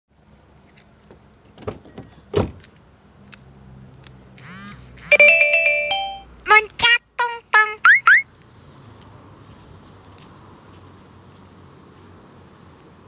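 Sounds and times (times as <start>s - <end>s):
car alarm multi-tone chime: 5.1s - 6.3s.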